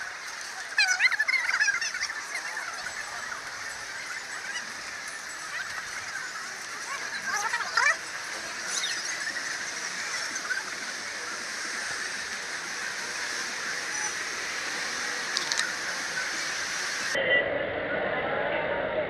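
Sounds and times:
hissing street ambience: 0.0 - 17.2
faint clicks: 15.3 - 15.8.

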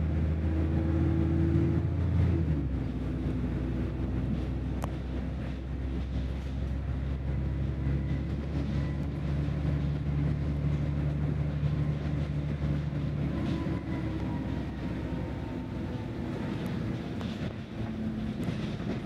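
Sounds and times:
bus engine running: 0.0 - 19.0.

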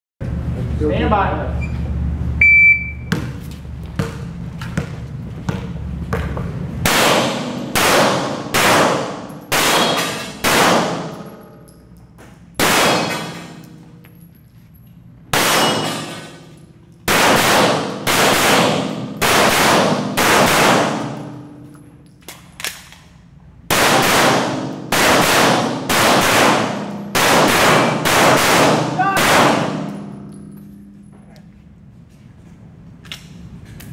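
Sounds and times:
shot timer beep: 2.4 - 3.2
pistol shots echoing indoors: 6.8 - 11.6, 12.6 - 14.0, 15.3 - 21.7, 23.7 - 30.9.

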